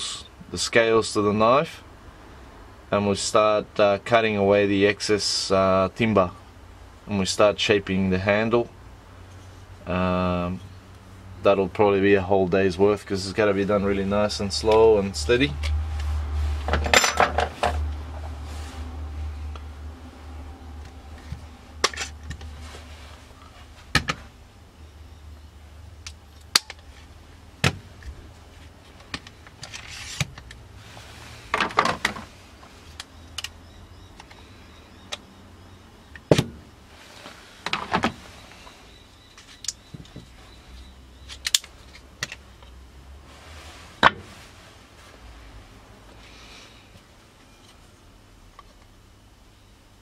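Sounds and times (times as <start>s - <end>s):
low steady hum: 0.0s - 50.0s
clamps and wood clattering on workbench: 16.7s - 17.8s.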